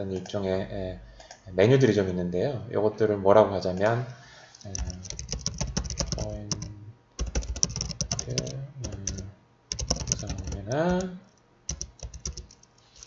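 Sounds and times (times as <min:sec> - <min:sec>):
typing on computer keyboard: 0:04.7 - 0:11.1, 0:11.7 - 0:12.8.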